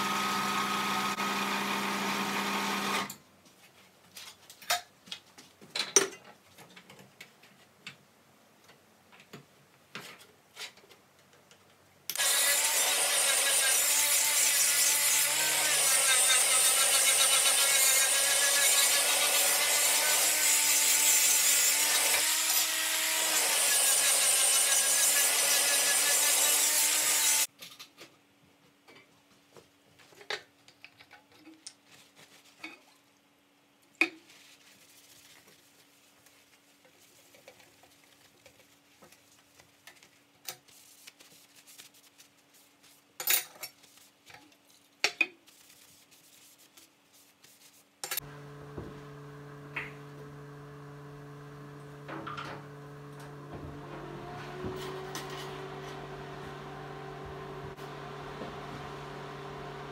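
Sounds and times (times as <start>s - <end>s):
angle grinder grinding metal: 12.1s - 27.5s, 48.0s - 59.9s
faint handling sounds: 27.6s - 48.2s.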